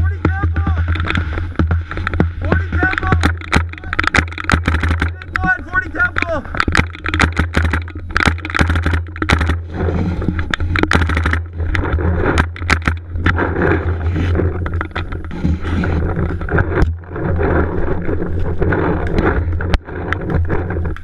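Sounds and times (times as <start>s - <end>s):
low hum: 0.0s - 21.0s
paintball markers firing: 0.4s - 9.6s.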